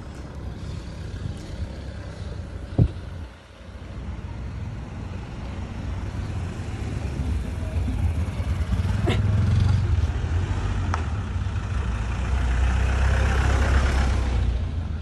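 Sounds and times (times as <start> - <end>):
car engine rumble passing: 4.2 - 15.0.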